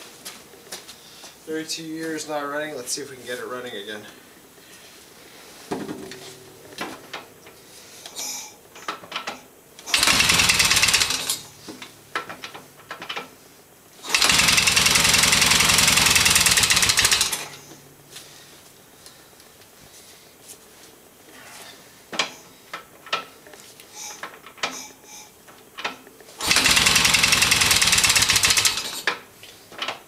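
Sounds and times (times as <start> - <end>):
electric starter cranking engine: 9.8 - 11.6, 14.0 - 17.8, 26.4 - 29.2.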